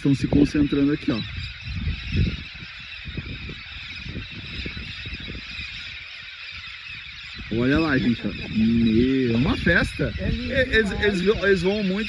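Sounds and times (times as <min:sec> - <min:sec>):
flock of parrots squawking: 0:00.0 - 0:12.0
low rumbling: 0:07.5 - 0:12.0.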